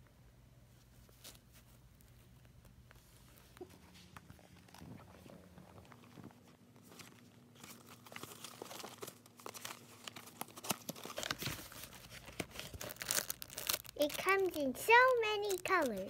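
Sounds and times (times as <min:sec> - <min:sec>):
plastic wrappers crinkling: 0:03.0 - 0:16.0.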